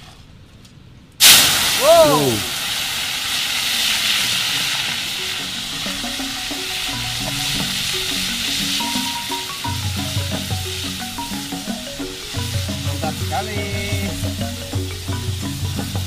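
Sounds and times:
insects sizzling in hot oil: 0:01.2 - 0:16.0
background music: 0:04.0 - 0:16.0.

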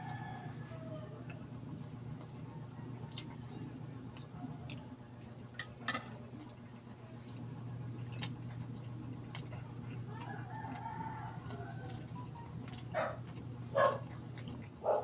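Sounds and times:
rooster crowing: 0:00.0 - 0:01.3, 0:10.1 - 0:12.4
steady low hum: 0:00.0 - 0:15.0
chewing clicks: 0:03.0 - 0:05.7, 0:07.6 - 0:15.0.

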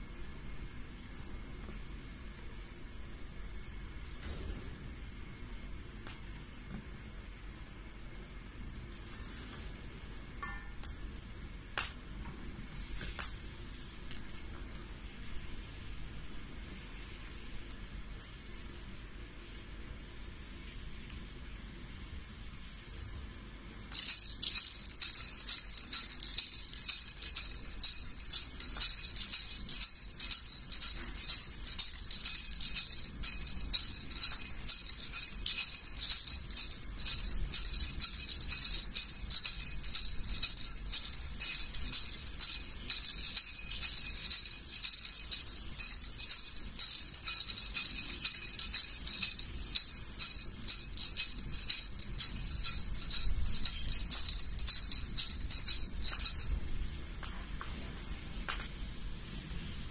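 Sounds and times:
jingle bells shaken: 0:22.9 - 0:23.2, 0:23.8 - 0:56.8.

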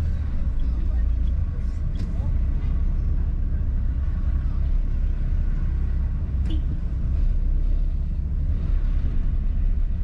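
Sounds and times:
car engine and tyres rumbling: 0:00.0 - 0:10.0.

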